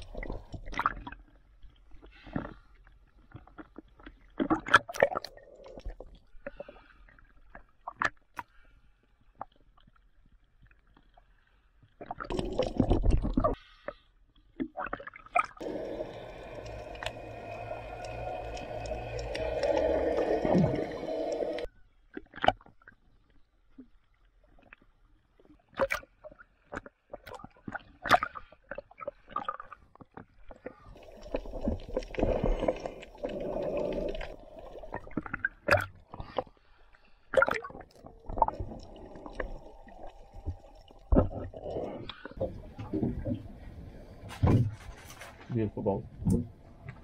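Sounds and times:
water gurgling and sloshing: 0:00.0 - 0:47.0
bubbles clicking and popping: 0:12.1 - 0:13.5, 0:14.9 - 0:21.7, 0:31.0 - 0:36.0, 0:37.3 - 0:43.2
dull rushing noise: 0:15.6 - 0:21.7.

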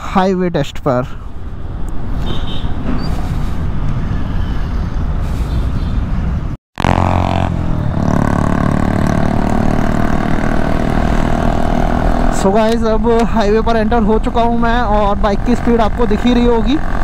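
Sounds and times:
wind and road noise: 0:00.0 - 0:17.0
motorcycle engine running: 0:06.8 - 0:12.4, 0:14.6 - 0:17.0.

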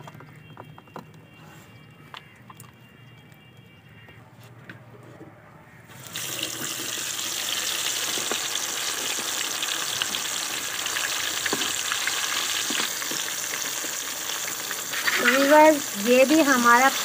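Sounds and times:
oil sizzling and crackling: 0:05.9 - 0:17.0.

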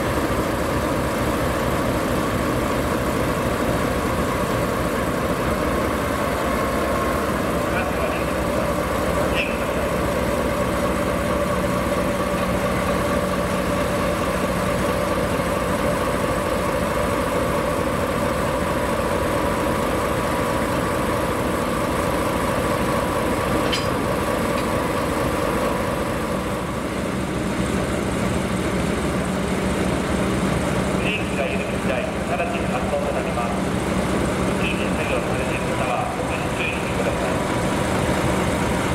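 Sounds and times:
locomotive diesel engine droning: 0:00.0 - 0:38.9
sharp click: 0:23.6 - 0:24.0.

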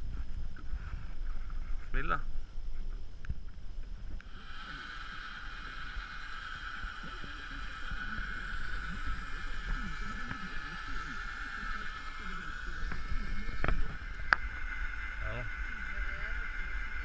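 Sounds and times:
fishing reel motor whining: 0:04.2 - 0:17.0.

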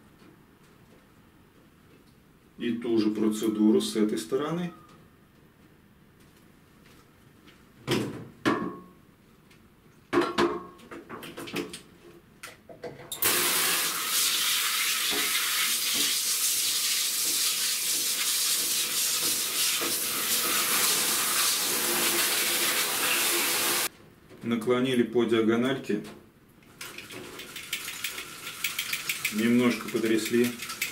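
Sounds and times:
shower spraying water on blind: 0:13.2 - 0:23.9, 0:26.8 - 0:30.9.

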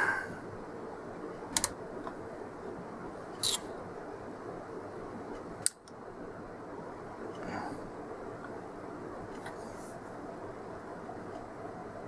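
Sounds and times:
steady background hiss: 0:00.0 - 0:12.0
knob and switch clicks: 0:01.5 - 0:01.8.

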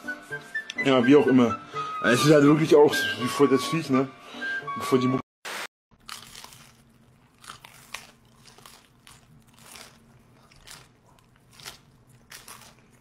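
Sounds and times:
man chewing pizza: 0:06.0 - 0:13.0.

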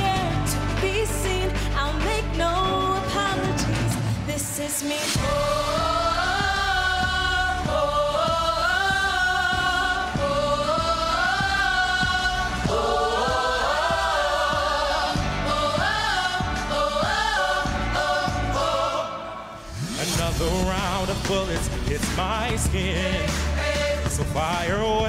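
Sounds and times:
vocal group singing harmonies: 0:00.0 - 0:25.0
backing track with steady beat: 0:05.2 - 0:19.0, 0:19.8 - 0:25.0.

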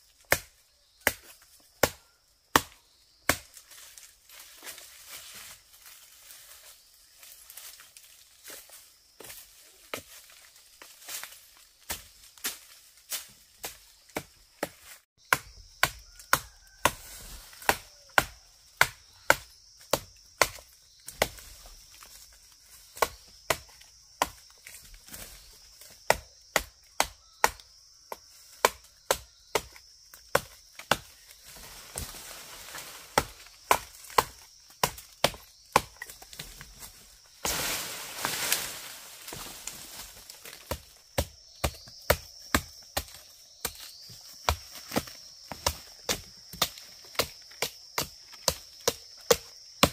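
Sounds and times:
chopping wood: 0:00.2 - 0:03.6, 0:13.6 - 0:17.0, 0:17.6 - 0:21.5, 0:23.0 - 0:24.5, 0:25.9 - 0:31.1, 0:33.2 - 0:36.5, 0:40.4 - 0:43.9, 0:44.5 - 0:49.9.

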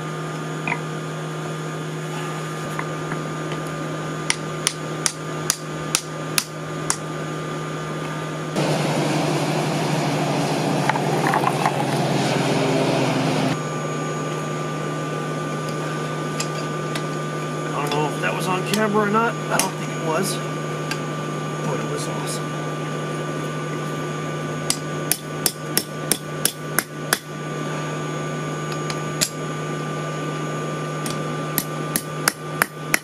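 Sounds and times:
steady low hum: 0:00.0 - 0:33.0
forge air blast rushing: 0:08.2 - 0:15.1
hammer striking on anvil: 0:24.7 - 0:27.3, 0:31.6 - 0:33.0.

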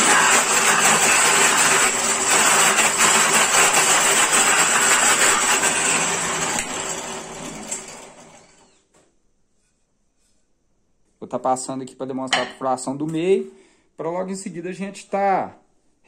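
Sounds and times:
drill press cutting wood: 0:00.0 - 0:08.8.

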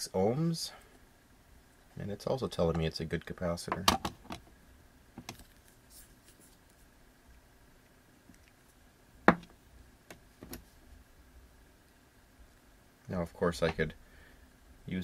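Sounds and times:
capacitor knocking on wooden bench: 0:09.2 - 0:09.5.

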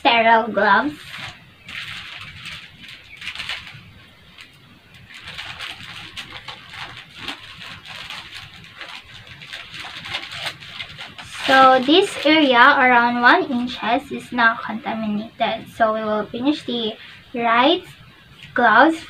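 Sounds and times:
paper wrapper rustling: 0:01.0 - 0:13.8.

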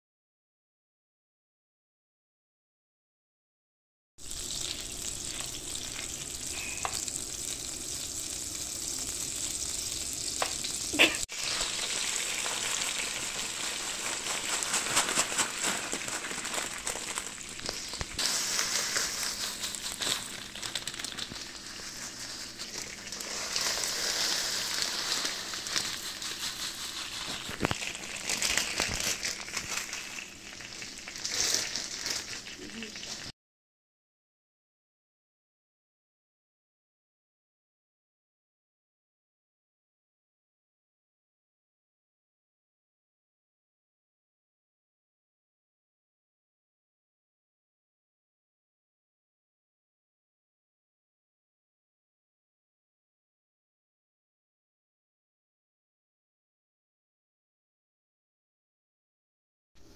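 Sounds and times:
butter sizzling in a frying pan: 0:04.2 - 0:33.3
noodles frying: 0:04.2 - 0:33.3
wooden spoon stirring: 0:11.0 - 0:30.2.

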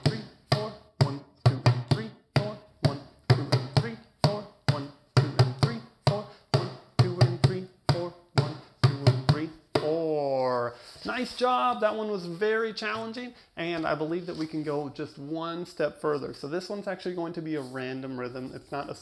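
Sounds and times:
djembe hand drum rhythm: 0:00.5 - 0:10.0.

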